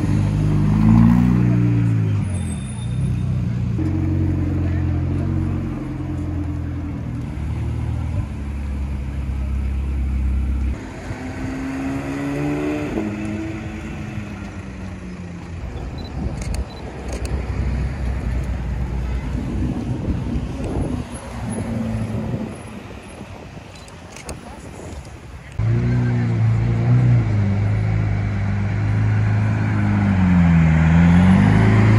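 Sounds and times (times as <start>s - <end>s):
engine revving: 0.0s - 2.2s, 10.3s - 14.7s, 25.6s - 31.9s
traffic: 0.0s - 31.9s.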